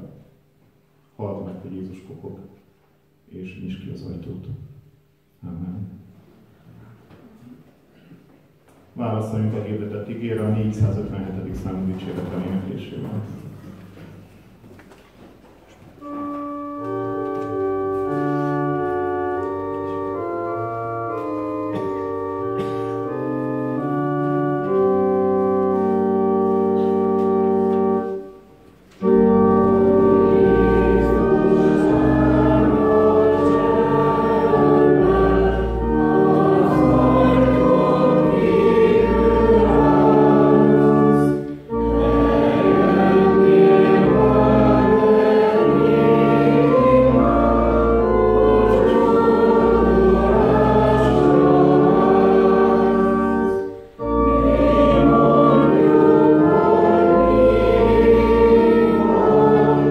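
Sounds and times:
church organ chords: 0.0s - 6.3s, 9.0s - 14.4s, 15.8s - 59.9s
congregation singing a hymn: 16.0s - 59.9s.

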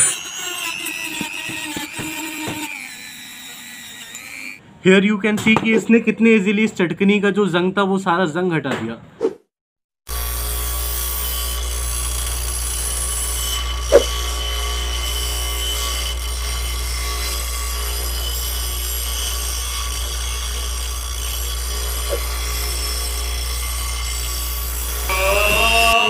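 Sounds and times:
rotary tool grinding metal: 0.0s - 4.6s, 10.1s - 26.0s.

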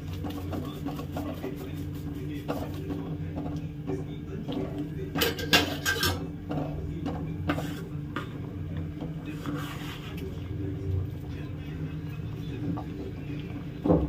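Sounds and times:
wooden spatula scraping a pan: 0.0s - 3.5s, 7.3s - 10.6s.

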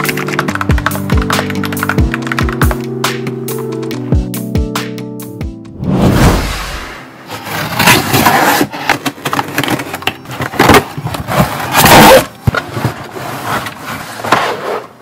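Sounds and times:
cardboard flaps scraping and rustling: 7.2s - 15.0s.

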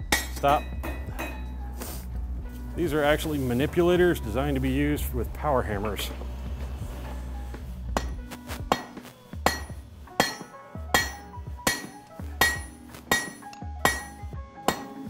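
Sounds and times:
hammer striking steel on anvil: 0.0s - 1.6s, 7.9s - 15.0s.

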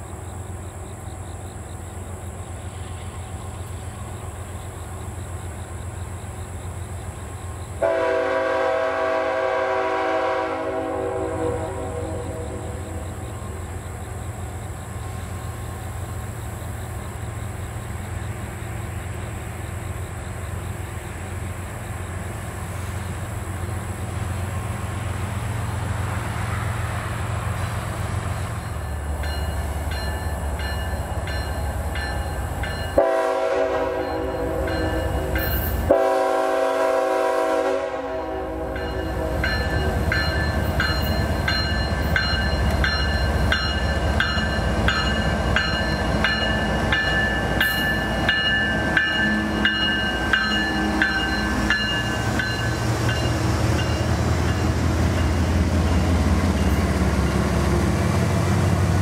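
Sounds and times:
diesel locomotives rumbling: 0.0s - 59.0s
train horn blasts: 7.8s - 13.2s, 32.9s - 39.9s.

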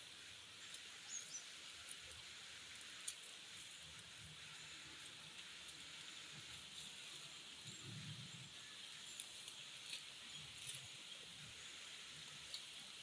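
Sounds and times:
steady background hiss: 0.0s - 13.0s
plant stems rustling and crackling: 9.0s - 11.5s.

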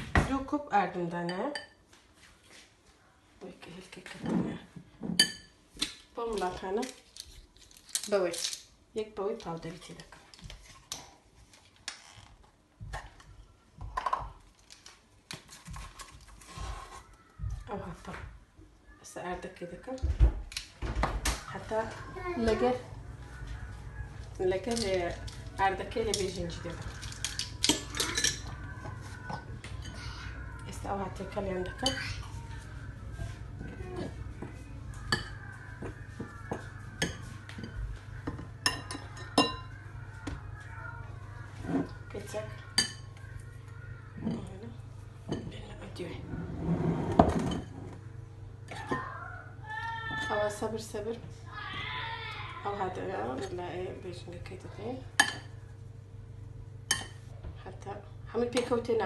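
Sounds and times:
utensils and dishes clinking: 24.3s - 32.7s, 34.9s - 39.8s, 41.6s - 43.4s, 47.1s - 48.0s
kitchen utensils clicking: 24.6s - 28.6s.

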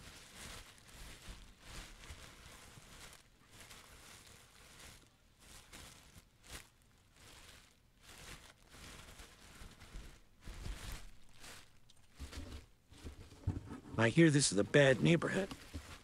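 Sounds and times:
packages rustling and clattering: 0.0s - 16.0s
dull thumps: 12.1s - 14.0s.

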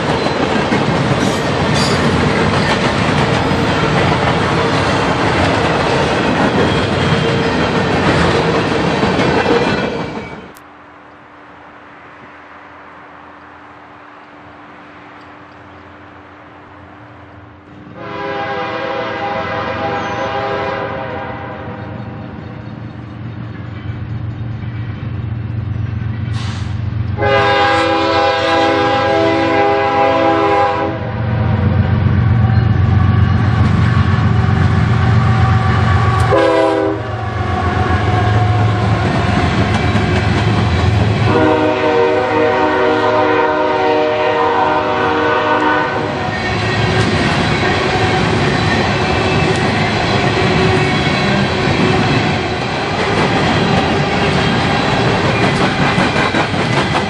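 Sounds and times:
train wheels clattering: 0.0s - 10.6s, 38.0s - 41.8s, 46.1s - 57.0s
locomotive engines rumbling: 0.0s - 12.3s, 12.9s - 57.0s
locomotive air horn blasts: 18.0s - 21.8s, 27.2s - 31.3s, 35.1s - 38.7s, 41.3s - 46.2s.

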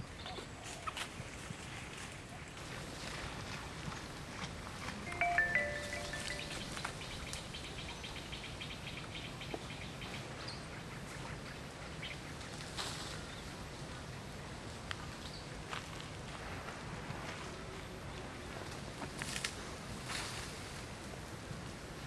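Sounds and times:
birds chirping: 5.1s - 10.6s.

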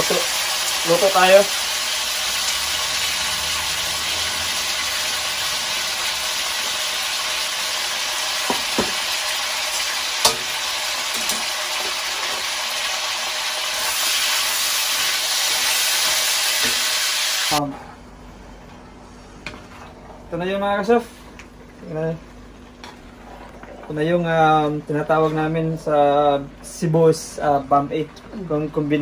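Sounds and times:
meat sizzling in a wok: 0.0s - 17.6s.

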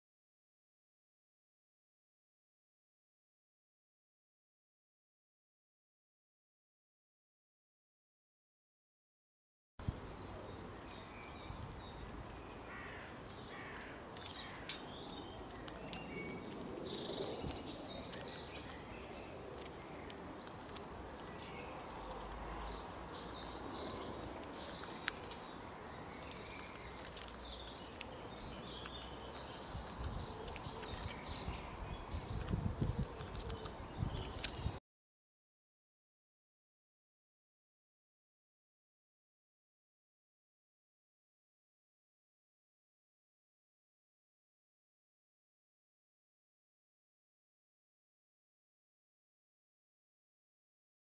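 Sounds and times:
wind rumble on microphone: 9.8s - 12.4s, 15.0s - 22.2s, 28.2s - 34.8s
small birds chirping: 9.8s - 34.8s.

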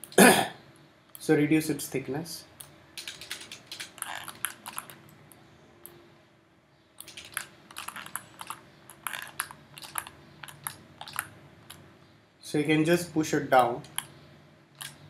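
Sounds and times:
faint steady hum: 0.0s - 15.0s
mouse and keyboard clicks: 2.6s - 5.2s, 7.0s - 11.8s, 13.6s - 14.2s.

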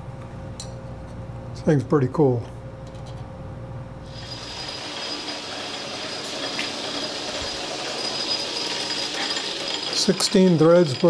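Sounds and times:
high whine: 4.0s - 11.0s
metal lathe whirring: 4.1s - 11.0s.

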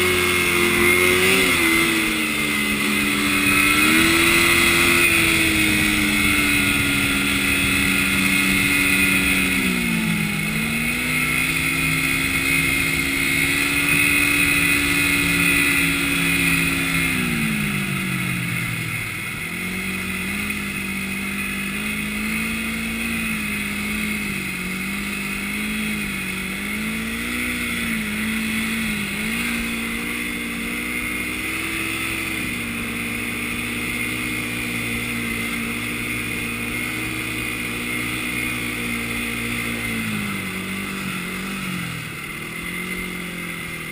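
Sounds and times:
snowmobile engine running: 0.0s - 43.9s.

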